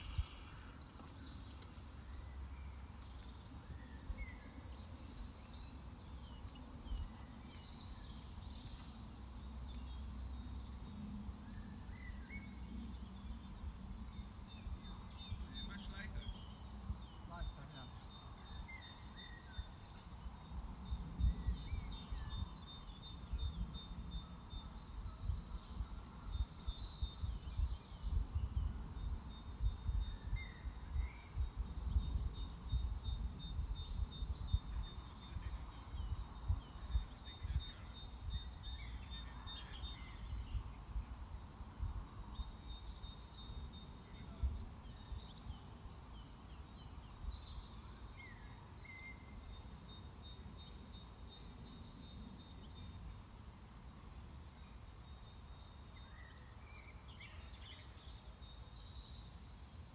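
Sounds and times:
wind on microphone: 0.0 - 0.7, 20.5 - 43.0
bird chirps: 0.0 - 41.2, 42.2 - 59.9.

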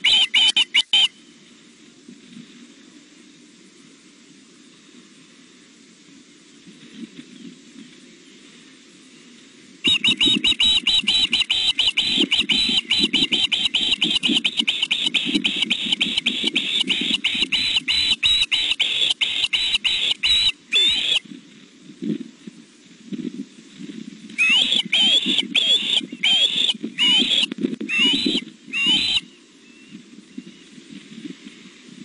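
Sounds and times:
osprey chirping calls: 0.0 - 1.2, 9.8 - 21.2, 24.4 - 30.6.

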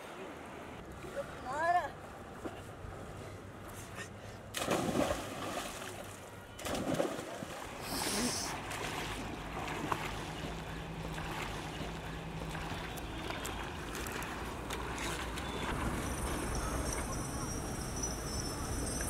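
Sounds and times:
water noise: 0.0 - 19.0
swimming strokes splashing: 4.5 - 16.8
splashes into river: 4.5 - 17.2.

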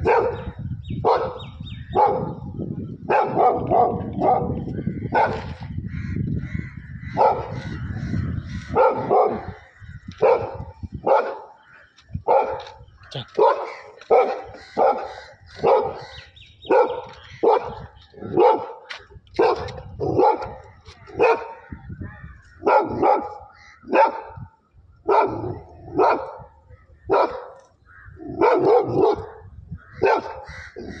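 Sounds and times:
dog barking: 0.0 - 2.4, 3.1 - 5.5, 7.2 - 7.6, 8.7 - 9.6, 10.2 - 11.5, 12.2 - 16.0, 16.7 - 21.6, 22.6 - 24.4, 25.1 - 26.5, 27.1 - 27.6, 28.3 - 30.4.

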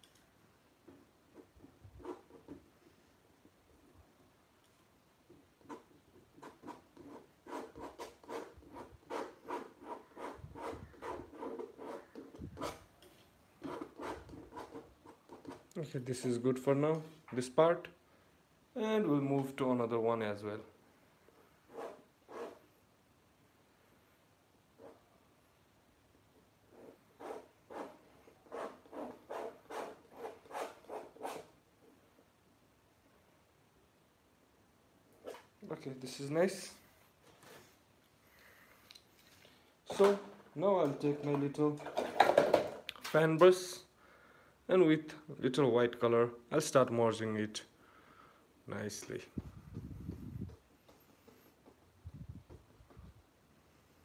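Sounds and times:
palette knife scraping paint: 5.6 - 13.0, 21.7 - 22.6, 26.7 - 31.5
palette knife scraping canvas: 21.7 - 22.6.

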